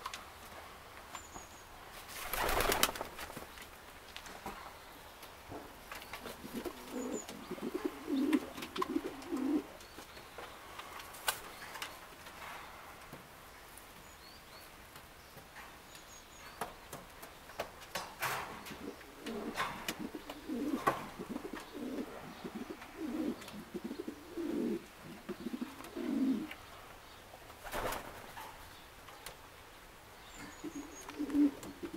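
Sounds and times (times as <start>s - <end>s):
pigeons cooing: 6.2s - 9.7s, 18.6s - 26.6s, 30.4s - 31.9s.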